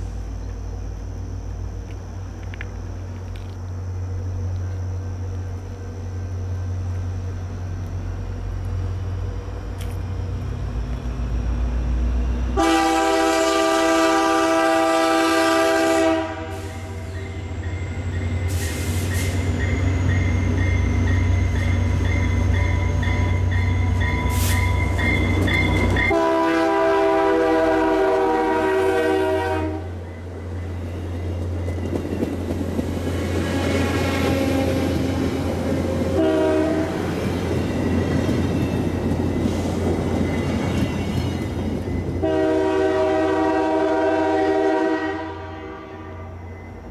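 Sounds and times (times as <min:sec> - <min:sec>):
train coaches rushing on rails: 0:00.0 - 0:46.9
train horn blasts: 0:12.5 - 0:17.1, 0:22.4 - 0:30.0, 0:33.4 - 0:35.2, 0:35.8 - 0:37.1, 0:42.2 - 0:46.4.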